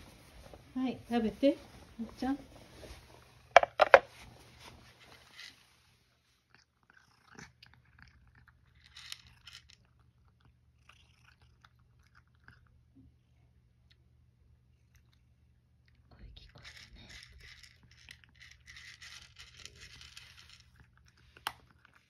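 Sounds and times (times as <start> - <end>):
cat chewing dry kibble: 5.2 - 22.0.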